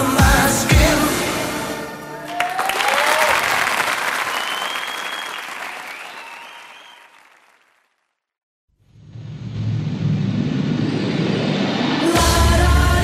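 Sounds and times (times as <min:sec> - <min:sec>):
synth-pop song with bass: 0:00.0 - 0:02.2, 0:11.2 - 0:13.0
crowd applause: 0:02.2 - 0:07.9.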